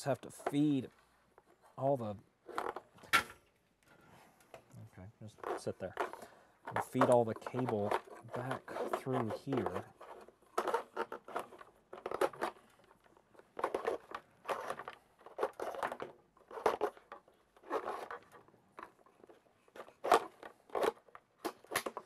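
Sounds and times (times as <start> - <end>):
cable scraping against plastic and wood: 2.4 - 3.0, 5.3 - 22.0.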